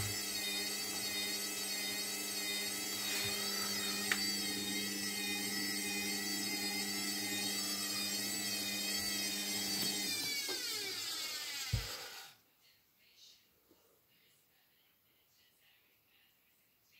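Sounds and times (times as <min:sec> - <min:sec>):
washing machine motor whining: 0:00.0 - 0:12.4.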